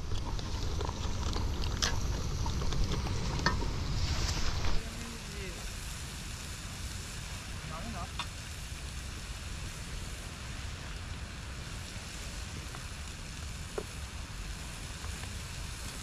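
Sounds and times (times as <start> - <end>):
outdoor hiss: 0.0 - 16.0
wind rumbling on microphone: 0.0 - 16.0.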